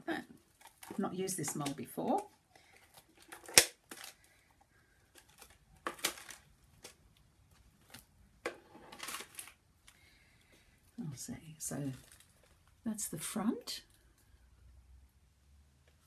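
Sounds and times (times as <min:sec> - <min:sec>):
rustling: 0:00.4 - 0:12.8.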